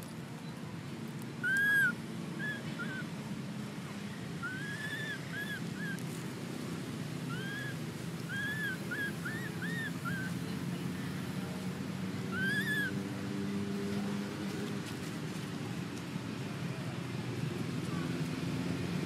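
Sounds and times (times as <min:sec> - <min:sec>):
infant monkey whimpering calls: 0:01.4 - 0:03.0, 0:04.4 - 0:06.0, 0:07.3 - 0:10.4, 0:12.3 - 0:13.0.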